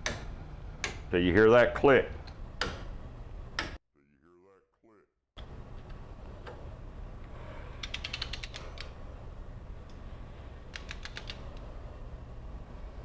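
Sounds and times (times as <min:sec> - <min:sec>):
steady low hum: 0:00.0 - 0:03.8, 0:05.4 - 0:13.0
ratchet wrench clicking: 0:07.8 - 0:08.9.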